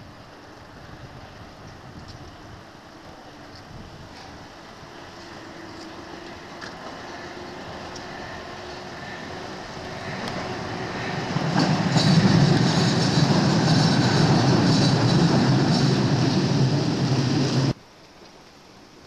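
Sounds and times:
underground train passing: 0:00.0 - 0:17.8
wheel-on-rail clatter: 0:05.7 - 0:17.8.

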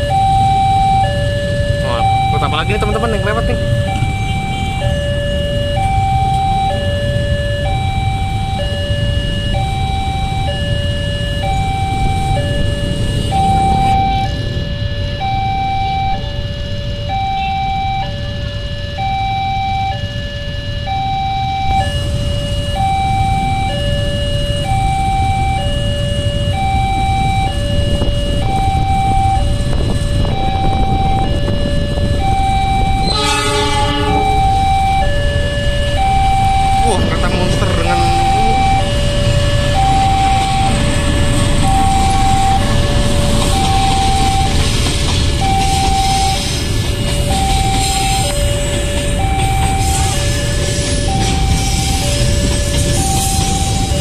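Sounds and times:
low rumble of road traffic: 0:00.0 - 0:54.0
two-tone crossing alarm: 0:00.0 - 0:54.0.

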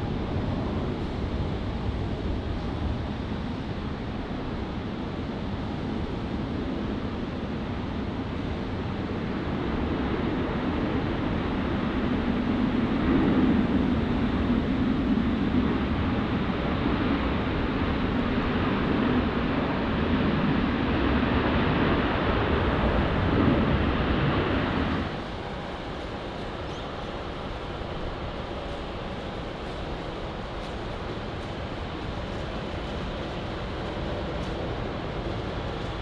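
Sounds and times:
jet engines running: 0:00.0 - 0:36.0.

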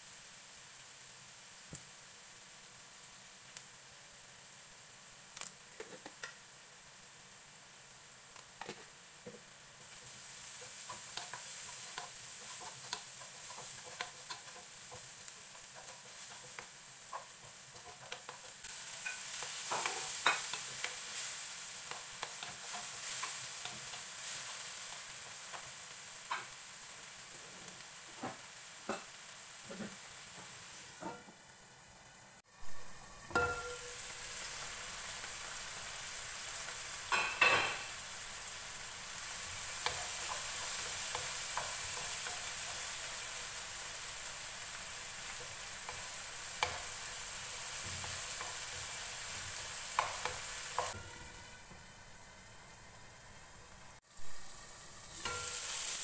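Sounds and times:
vegetables sizzling in a pan: 0:00.0 - 0:56.0
spatula scraping and tapping pan: 0:05.8 - 0:06.4, 0:08.6 - 0:26.6, 0:33.3 - 0:34.7, 0:39.2 - 0:43.6, 0:45.2 - 0:51.8, 0:55.2 - 0:56.0.

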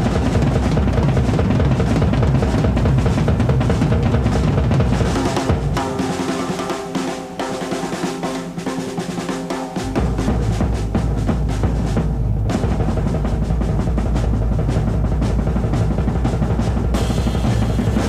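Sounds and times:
drum rolls on snare and toms: 0:00.0 - 0:18.0
deep bass drum beats: 0:09.7 - 0:18.0.

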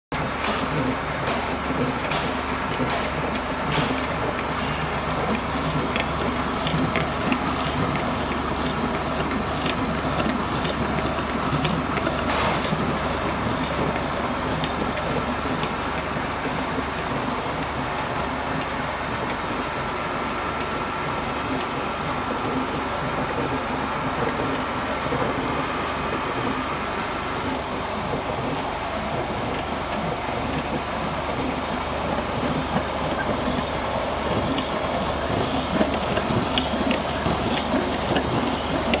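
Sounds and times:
drilling machine cutting metal: 0:32.8 - 0:39.0.

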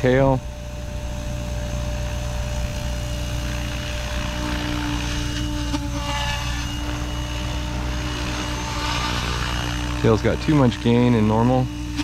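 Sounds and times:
electric motor whine: 0:00.0 - 0:12.0
rotor blades droning: 0:00.0 - 0:12.0.

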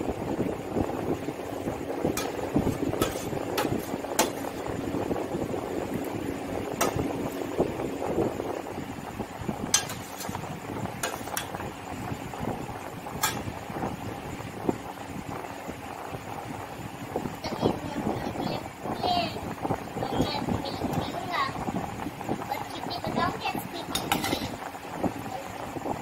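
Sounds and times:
steady background noise: 0:00.0 - 0:26.0
metal spoon clinking on steel plate: 0:02.2 - 0:02.4, 0:09.7 - 0:10.4, 0:13.2 - 0:13.5, 0:23.9 - 0:24.6.

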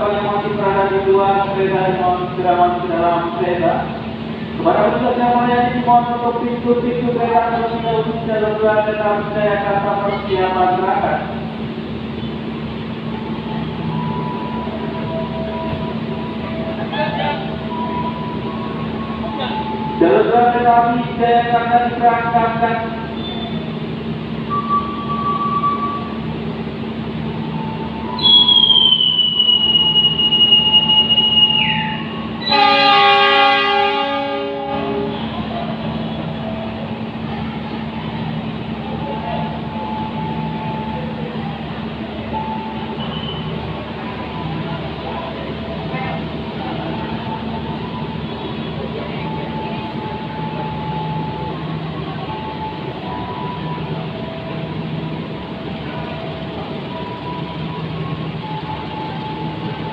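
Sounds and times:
train rumbling and humming: 0:00.0 - 0:59.9
high squeal sliding down: 0:28.2 - 0:32.7
diesel locomotive horn: 0:28.2 - 0:36.4.

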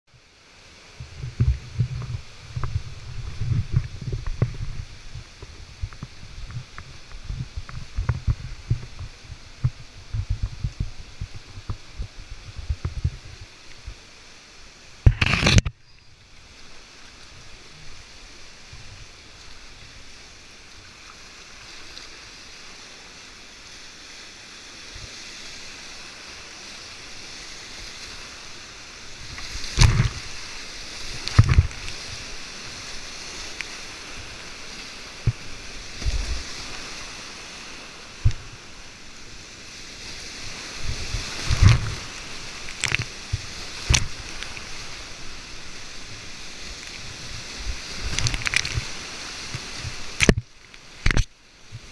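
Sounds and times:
paddle splashes and knocks: 0:29.4 - 0:30.4, 0:31.1 - 0:32.2, 0:40.8 - 0:44.7.

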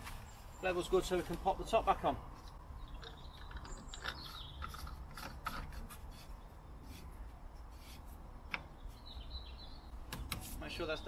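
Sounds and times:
faint rubbing scrapes: 0:04.7 - 0:08.3.

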